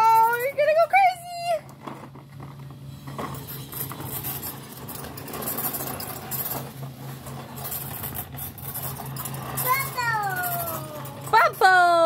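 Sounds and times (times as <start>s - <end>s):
plastic wheels rattling on concrete: 0.0s - 12.0s
toy motor humming: 7.6s - 12.0s.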